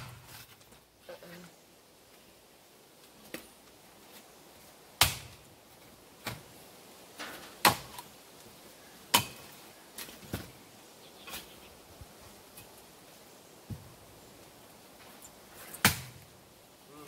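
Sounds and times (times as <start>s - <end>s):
axe chopping wood: 5.0s - 5.4s, 7.6s - 8.1s, 9.1s - 9.5s, 15.8s - 16.2s.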